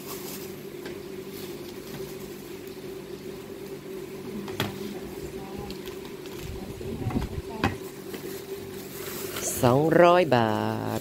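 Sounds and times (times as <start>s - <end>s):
plastic bag rustling: 0.0s - 3.0s, 4.8s - 11.0s
low electrical hum: 0.0s - 11.0s.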